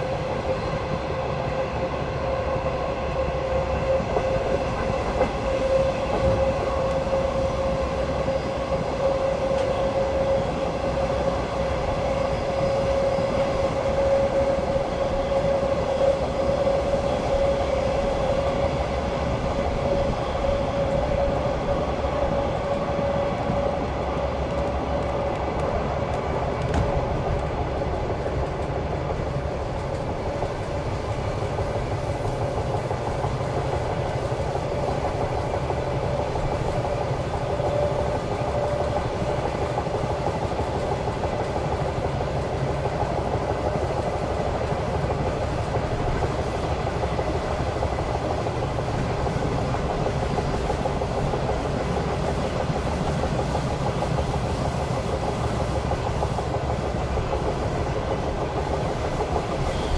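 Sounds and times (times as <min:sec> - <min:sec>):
train wheels clattering: 0:00.0 - 0:59.9.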